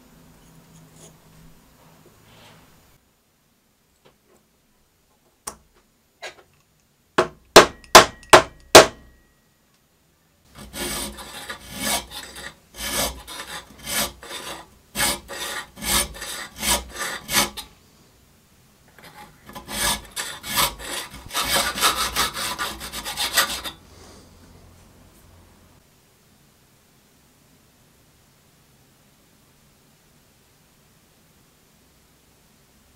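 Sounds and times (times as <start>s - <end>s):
sharp knocks: 7.2s - 9.1s
hand file rasping on steel: 10.5s - 17.7s, 19.0s - 23.9s.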